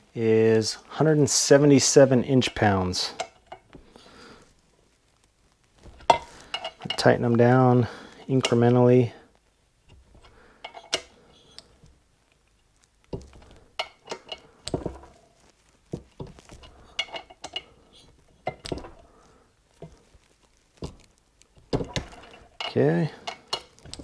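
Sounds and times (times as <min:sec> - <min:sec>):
metal clinking: 0:16.1 - 0:19.2, 0:20.8 - 0:24.0.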